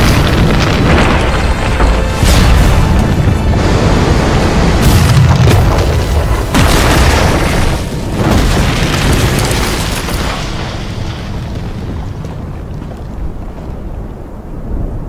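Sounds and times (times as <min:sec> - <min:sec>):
sharp hit: 0:00.0 - 0:05.8
rush of noise: 0:00.0 - 0:08.5
deep shockwave boom: 0:00.0 - 0:09.2.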